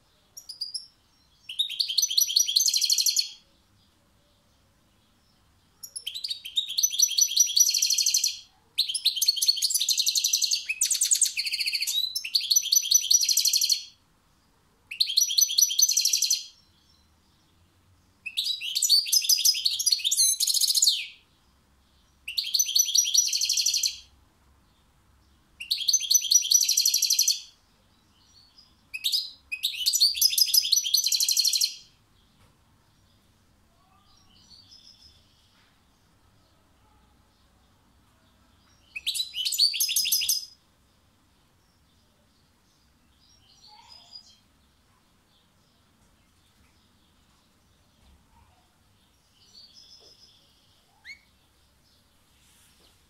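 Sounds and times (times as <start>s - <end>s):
bird twittering and trilling: 0.4s - 3.4s, 5.3s - 13.9s, 14.9s - 17.1s, 18.2s - 21.2s, 22.1s - 24.1s, 25.6s - 27.6s, 28.2s - 32.4s, 38.6s - 40.6s, 42.8s - 44.8s, 47.9s - 52.0s.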